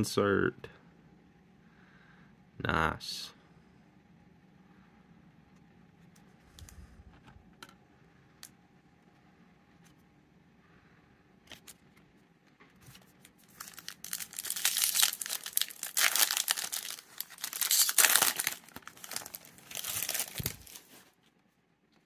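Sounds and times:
foil wrapper tearing and crinkling: 0:13.4 - 0:21.1.

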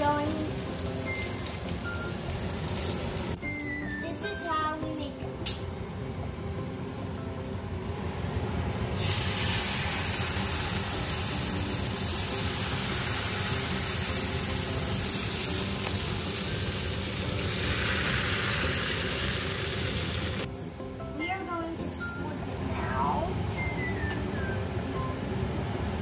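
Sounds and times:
batter sizzling in a frying pan: 0:00.0 - 0:03.4, 0:09.0 - 0:20.5.

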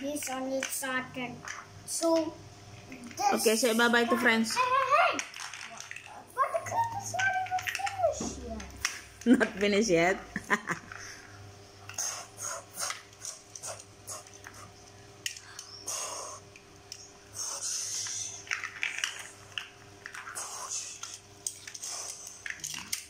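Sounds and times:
faint steady hum: 0:00.0 - 0:23.0
plastic toy bricks clicking: 0:05.1 - 0:06.2, 0:07.1 - 0:08.1, 0:17.8 - 0:23.0.

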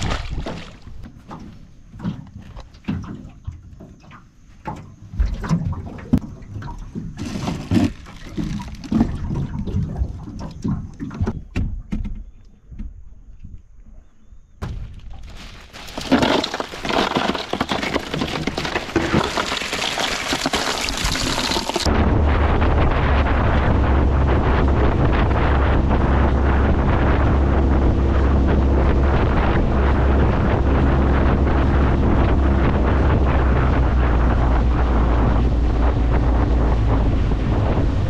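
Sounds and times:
knocks and thumps on a deck: 0:00.0 - 0:13.0
ice cubes poured into a cooler: 0:07.2 - 0:09.1, 0:15.2 - 0:21.9.

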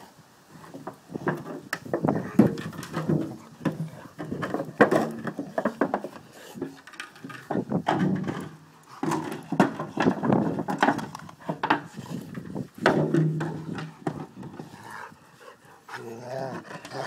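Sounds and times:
plastic bottle knocks and crinkles: 0:00.8 - 0:14.6
dog growling: 0:14.5 - 0:17.0.

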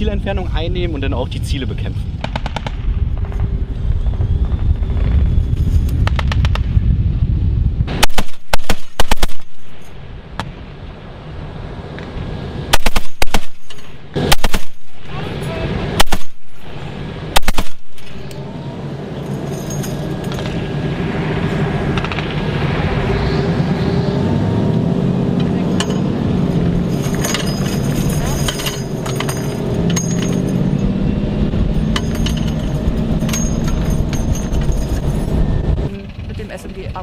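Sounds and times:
low steady rumble: 0:00.0 - 0:37.0
heavy machine gun bursts: 0:12.7 - 0:15.2, 0:16.0 - 0:18.3.

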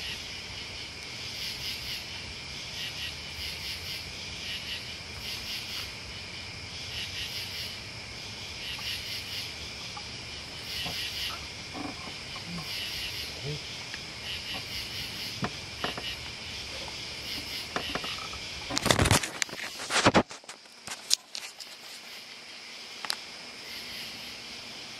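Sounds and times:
crickets chirping: 0:00.0 - 0:24.9
low background rumble: 0:05.9 - 0:18.8
camera handling knocks and rustles: 0:15.3 - 0:21.7.

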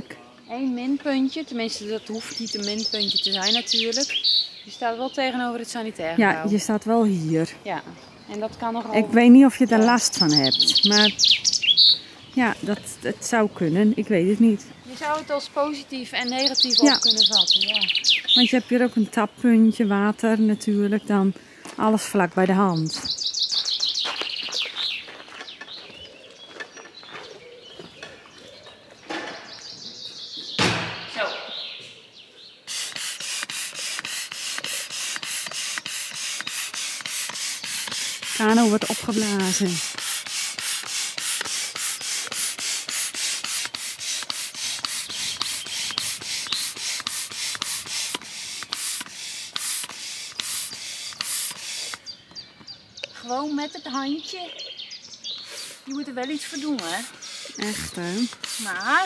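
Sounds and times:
bird chirps: 0:00.0 - 0:59.0
songbird singing: 0:00.0 - 0:59.0
hand air pump hissing strokes: 0:16.4 - 0:18.6, 0:32.6 - 0:52.2, 0:55.4 - 0:59.0.

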